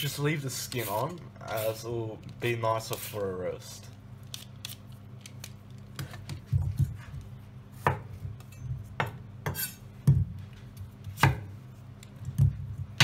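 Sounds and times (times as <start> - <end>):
knife scraping: 9.5 - 9.9.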